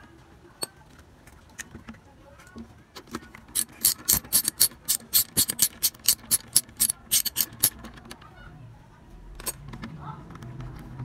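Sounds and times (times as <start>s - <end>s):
ratchet wrench clicking: 3.5s - 7.8s.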